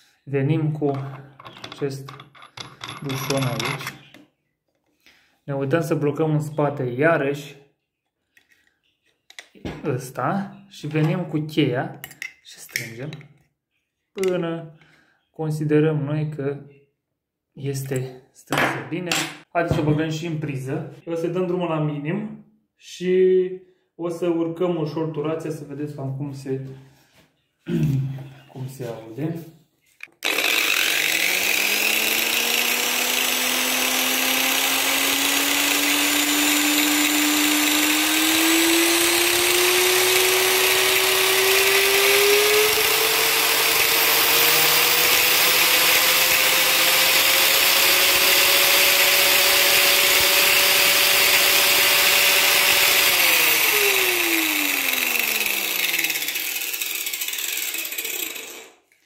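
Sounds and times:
angle grinder whine: 30.2s - 58.9s.

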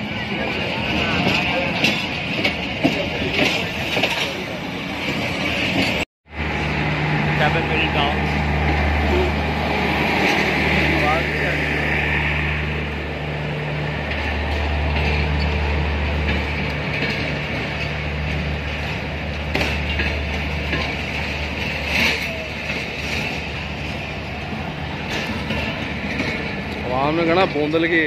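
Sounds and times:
train wheels clattering on rails: 0.0s - 28.0s.

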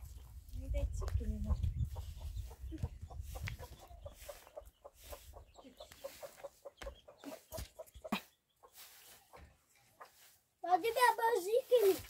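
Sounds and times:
chickens clucking: 0.0s - 11.3s
footsteps on stony ground: 2.4s - 12.0s.

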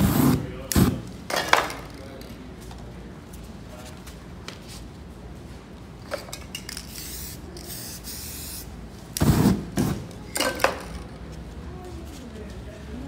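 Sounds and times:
spray can hissing: 6.8s - 9.6s.

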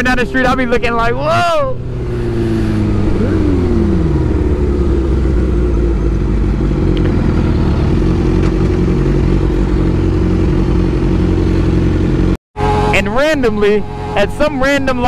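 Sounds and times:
motorcycle engine at low revs: 1.8s - 12.8s.

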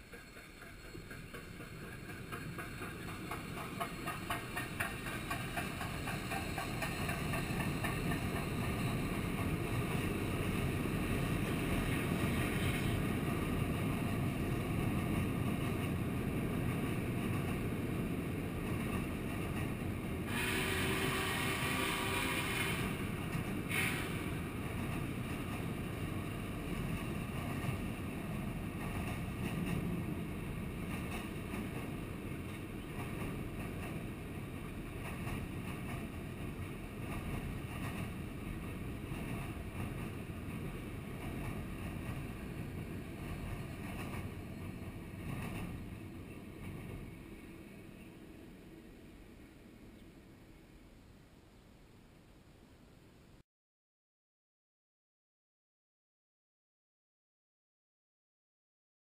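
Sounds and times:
rhythmic clicking: 0.0s - 8.8s
train wheels rumbling on bridge: 0.0s - 48.4s
steam hissing burst: 20.3s - 23.0s, 23.7s - 24.4s.

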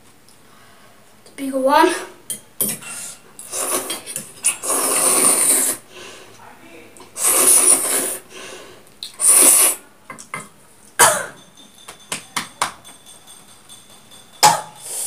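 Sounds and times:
person slurping noodles: 3.4s - 5.9s, 7.1s - 8.3s, 9.0s - 9.8s.

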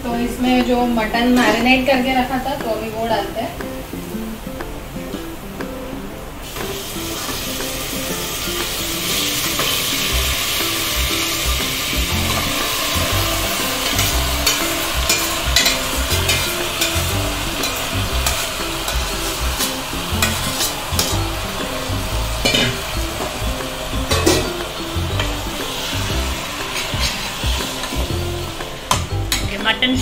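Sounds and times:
meat sizzling in hot oil: 6.5s - 29.6s.

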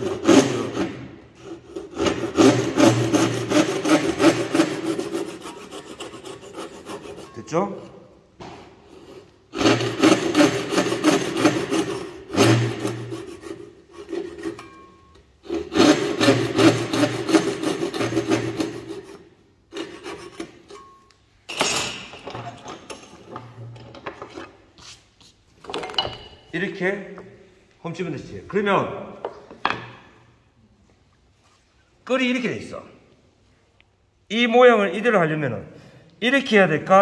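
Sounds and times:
hand saw cutting wood: 0.0s - 8.1s, 8.8s - 20.9s.

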